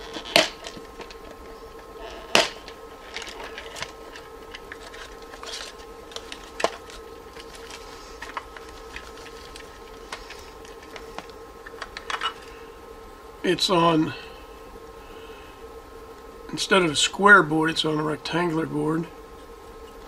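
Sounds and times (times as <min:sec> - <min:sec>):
faint steady hum: 0:00.0 - 0:20.0
paper and plastic box handling: 0:02.3 - 0:12.5.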